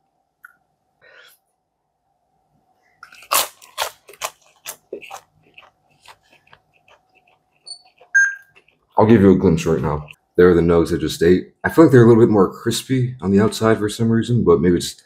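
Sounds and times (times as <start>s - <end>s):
faint hum: 0.0s - 15.0s
crunchy chewing: 3.0s - 10.2s
faint high beeps: 7.7s - 8.5s.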